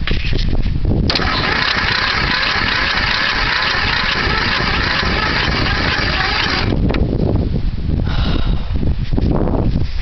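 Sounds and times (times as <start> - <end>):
mower engine cranking on starter: 1.1 - 6.8.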